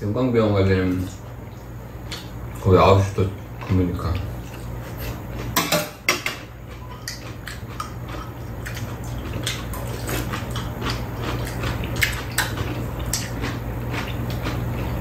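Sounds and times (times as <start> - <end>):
steady low hum: 0.0 - 15.0
cutlery clinking against bowls: 5.5 - 8.3.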